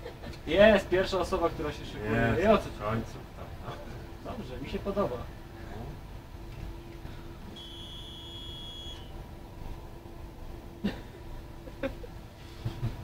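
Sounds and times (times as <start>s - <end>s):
steady hum: 0.0s - 13.0s
high electronic beep: 7.6s - 9.1s.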